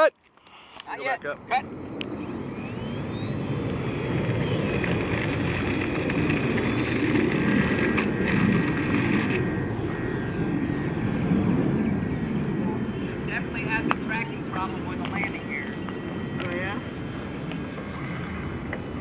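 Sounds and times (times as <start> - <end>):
low rumbling noise: 1.2 - 19.0
model airplane motor whining: 2.9 - 10.3.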